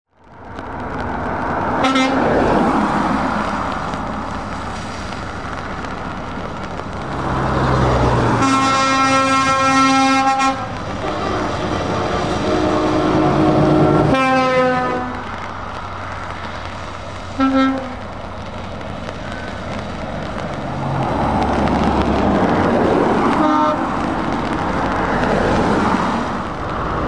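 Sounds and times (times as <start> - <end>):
tyres hissing on wet road: 0.2 - 27.0
heavy trucks driving past: 0.3 - 27.0
multi-note air horn blast: 1.8 - 2.2, 8.4 - 15.2, 17.4 - 18.0, 23.4 - 23.8.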